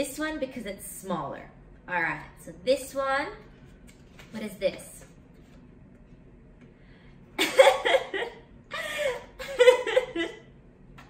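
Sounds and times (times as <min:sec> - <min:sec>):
woman laughing: 0:07.4 - 0:10.5.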